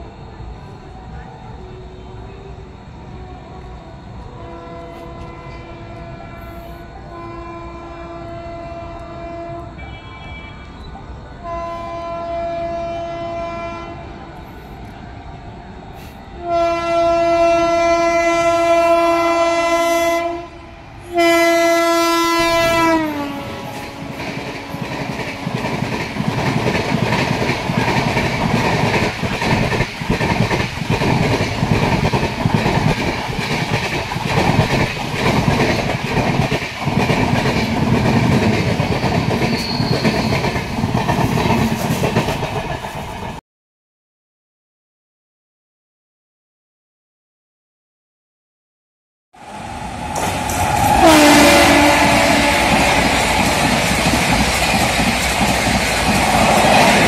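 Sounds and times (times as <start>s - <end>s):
locomotive horn blasts: 4.4s - 10.8s, 11.4s - 14.2s, 16.4s - 25.0s, 50.8s - 53.2s
train wheels clattering on rails: 22.6s - 43.4s, 50.0s - 57.0s.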